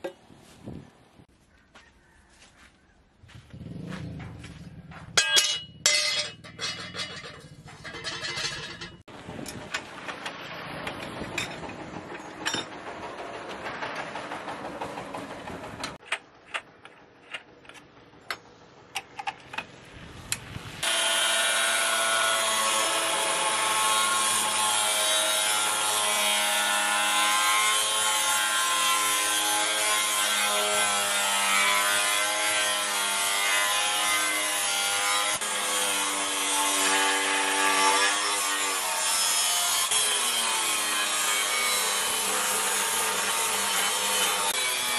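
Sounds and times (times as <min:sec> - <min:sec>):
angle grinder cutting steel: 0:05.2 - 0:09.1, 0:20.8 - 0:44.9.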